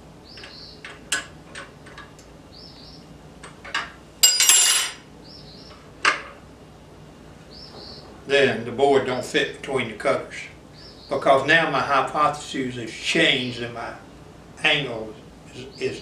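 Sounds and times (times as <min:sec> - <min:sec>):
metal tools clinking and knocking: 0:03.6 - 0:05.0
ringing metallic rattle: 0:04.2 - 0:05.0.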